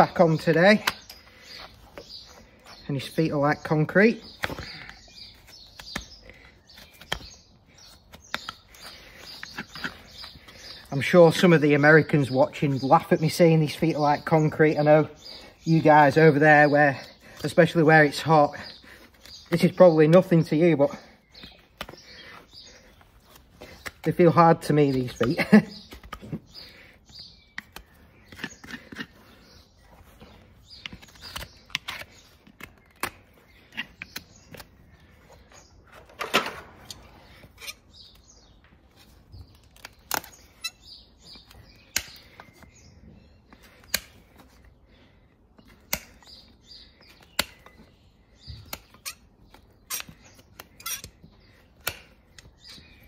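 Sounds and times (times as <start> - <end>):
knife scraping horse hoof: 27.5 - 30.0, 48.7 - 53.0.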